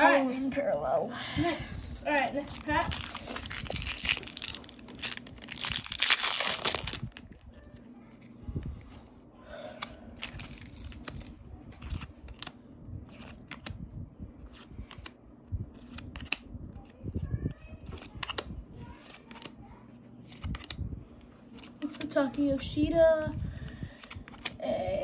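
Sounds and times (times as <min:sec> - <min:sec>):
wrapper tearing and crinkling: 0:02.4 - 0:07.5, 0:10.2 - 0:12.5
cards flipped through: 0:02.5 - 0:07.1, 0:09.8 - 0:13.8, 0:15.8 - 0:16.9, 0:17.8 - 0:19.6, 0:20.2 - 0:20.8, 0:23.9 - 0:24.6.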